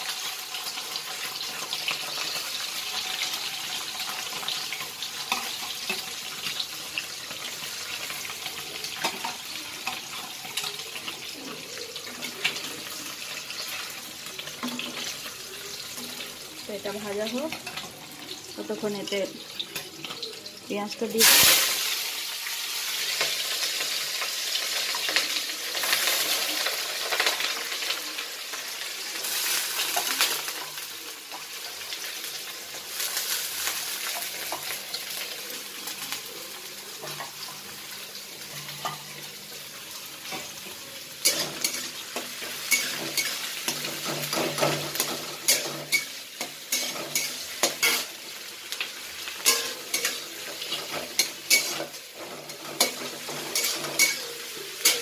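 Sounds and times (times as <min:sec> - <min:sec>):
onions sizzling in oil: 0:00.0 - 0:55.0
metal spatula scraping pan: 0:41.2 - 0:48.3, 0:49.4 - 0:55.0.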